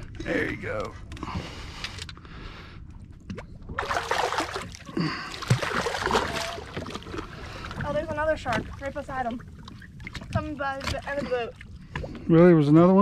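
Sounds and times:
water splashing from thrashing fish: 3.7 - 12.2.

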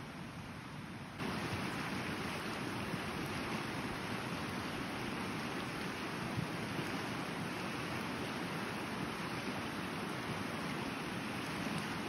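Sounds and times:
river current rushing: 1.2 - 12.0.

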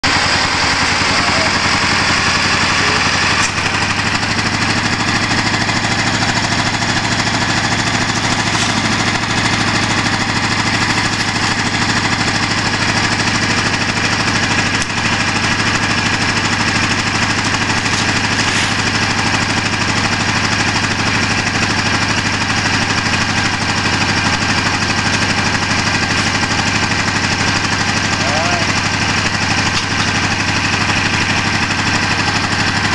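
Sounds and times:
tractor engine running: 0.0 - 32.9.

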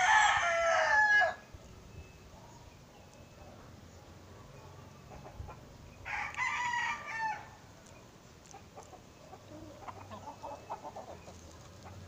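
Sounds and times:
rooster crowing: 0.0 - 1.4, 6.0 - 7.6.

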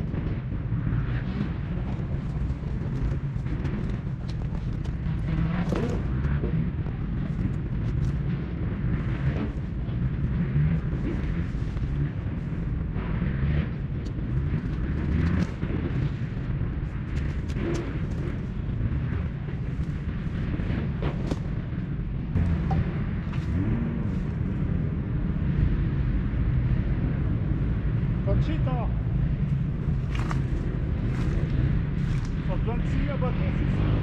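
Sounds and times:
bike tyres on trail: 0.0 - 28.4, 29.0 - 34.0
wind on microphone: 0.0 - 34.0
bike clicks and rattles: 1.2 - 12.8, 13.7 - 23.8, 29.4 - 32.6.

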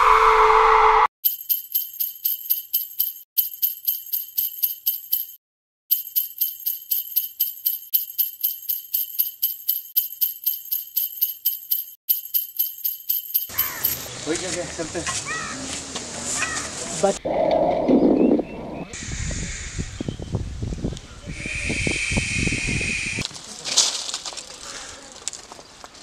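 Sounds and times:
small bells jingling: 1.2 - 14.2.

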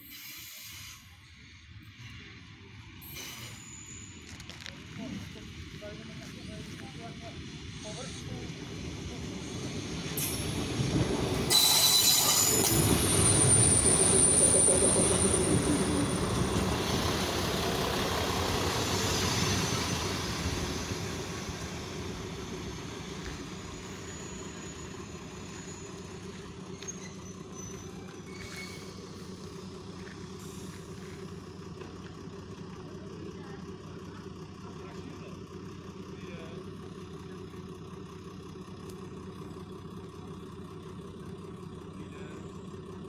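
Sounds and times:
diesel railbus rolling in: 0.0 - 43.0
railbus idling hum: 0.0 - 43.0
wheel squeal: 3.0 - 4.7, 10.2 - 17.6, 18.2 - 29.7.

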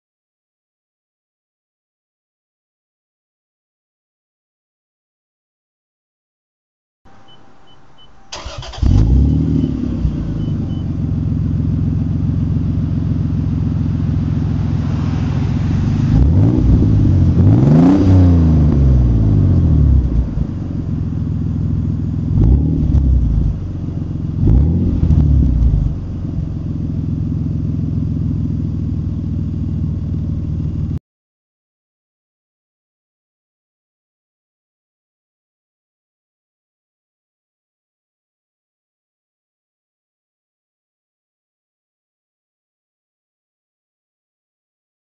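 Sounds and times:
car engine starting and idling: 7.1 - 31.0
engine revving: 8.3 - 30.6.

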